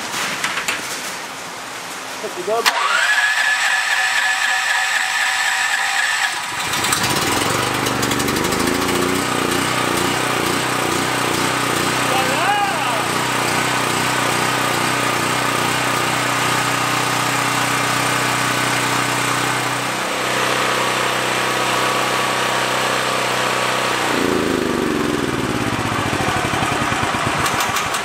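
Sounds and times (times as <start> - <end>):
generator engine running: 2.6 - 28.0.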